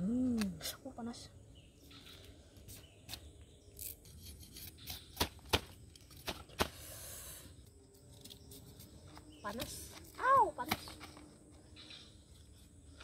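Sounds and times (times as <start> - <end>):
sugarcane snapping and cracking: 3.8 - 6.8.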